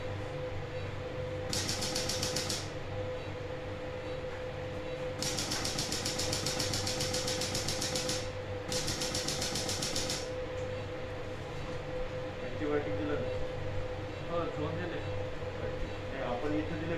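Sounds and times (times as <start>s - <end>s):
equipment hum: 0.0s - 16.9s
rapid even clicking: 1.5s - 2.7s, 5.2s - 10.3s.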